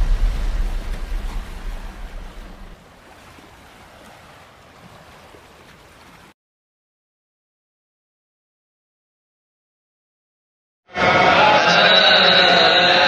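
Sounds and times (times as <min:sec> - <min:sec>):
deep boom rumbling: 0:00.0 - 0:02.8
sea surf: 0:00.0 - 0:06.4, 0:10.9 - 0:13.0.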